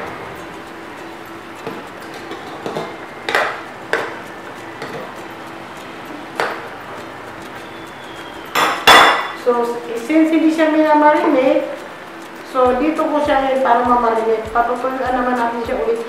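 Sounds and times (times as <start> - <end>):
metal spoon clinking on pan: 8.5 - 9.4.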